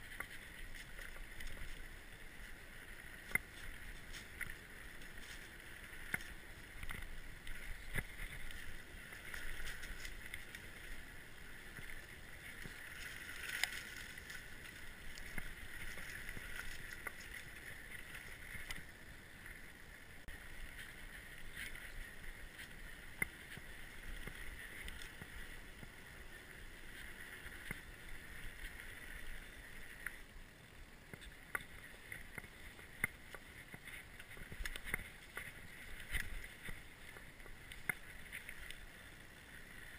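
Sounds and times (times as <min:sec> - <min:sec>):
bike tyres on dirt trail: 0:00.0 - 0:39.9.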